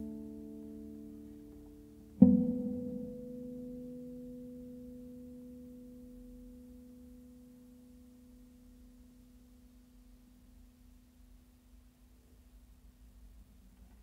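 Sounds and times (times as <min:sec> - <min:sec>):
classical guitar chord ringing: 0:00.0 - 0:09.3.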